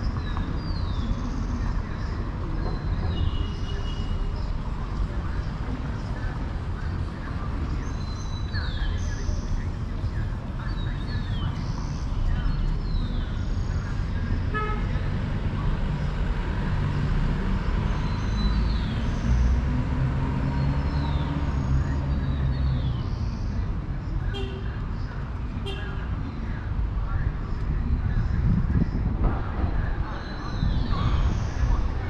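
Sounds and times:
car horn toot: 14.5s - 14.9s.

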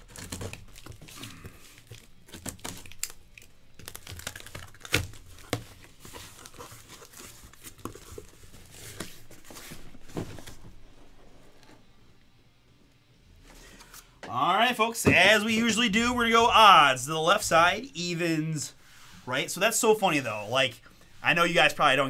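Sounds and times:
cardboard tearing: 0.0s - 10.6s.

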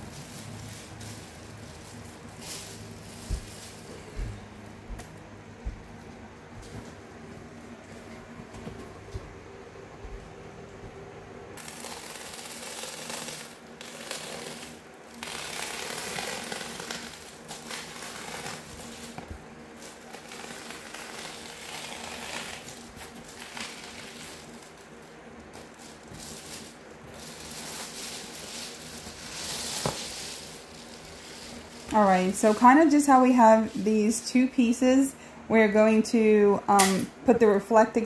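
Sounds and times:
foil bubble insulation crinkling: 0.0s - 5.1s, 11.6s - 34.7s.

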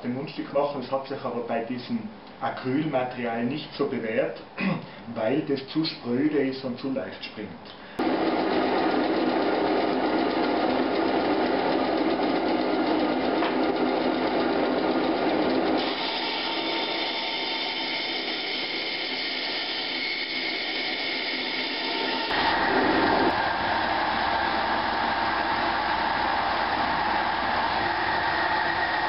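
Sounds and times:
band saw cutting plastic: 8.0s - 23.5s
band saw running: 8.0s - 29.0s.

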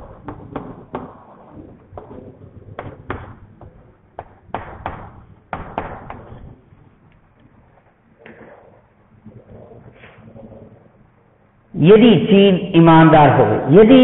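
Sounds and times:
chalk tapping and scraping on blackboard: 0.0s - 6.4s.

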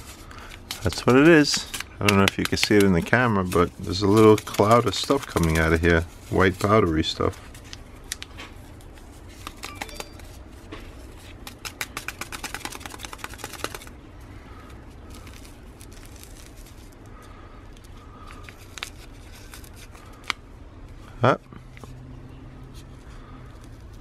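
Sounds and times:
packet crinkling: 0.0s - 10.4s, 11.2s - 14.0s, 14.6s - 17.1s.

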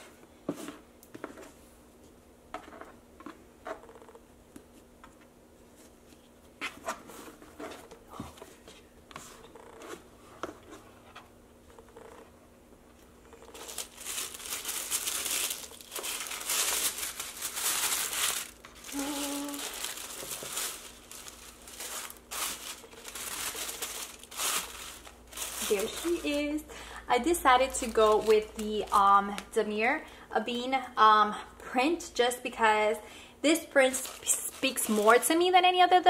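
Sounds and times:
tissue paper crinkling: 13.4s - 26.6s, 27.2s - 29.4s, 33.8s - 35.4s.

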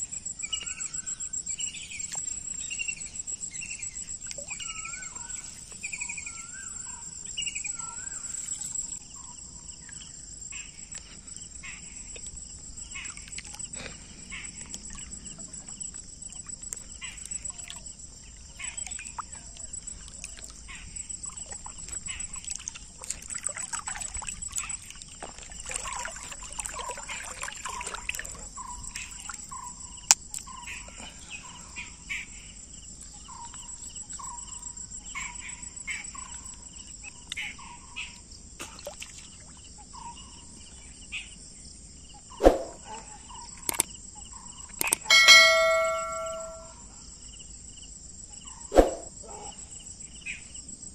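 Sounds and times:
crickets chirring: 0.0s - 50.9s
sharp clicks: 43.6s - 43.9s, 44.8s - 45.1s
bell ding: 45.0s - 46.8s.

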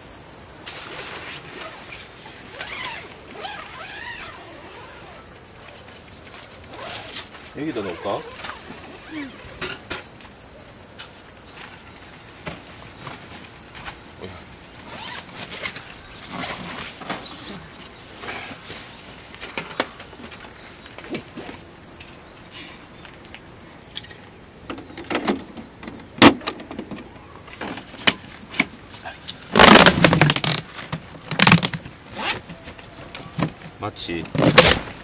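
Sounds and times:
high insect drone: 0.0s - 35.0s
bag rustling and knocks: 29.5s - 35.0s
rustling thump: 29.5s - 35.0s.

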